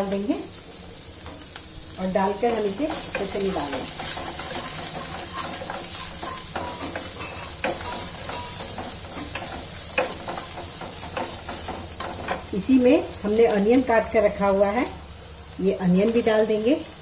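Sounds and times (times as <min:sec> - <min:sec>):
garlic sizzling in hot oil: 0:00.0 - 0:17.0
wooden spatula scraping a pan: 0:02.3 - 0:12.6.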